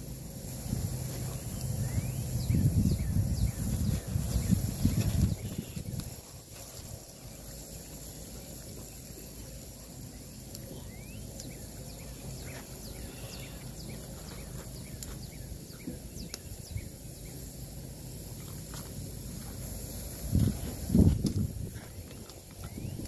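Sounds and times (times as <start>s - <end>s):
steady low rumble: 0.0s - 23.0s
high bird chirps: 1.4s - 6.0s, 10.0s - 17.5s, 22.1s - 23.0s.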